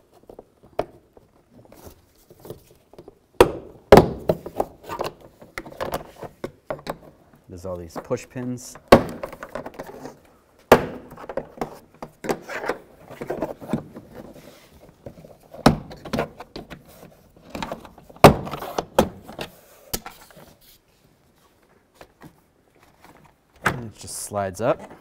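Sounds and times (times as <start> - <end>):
plastic panel scraping and rustling: 9.1 - 10.3, 11.1 - 20.7.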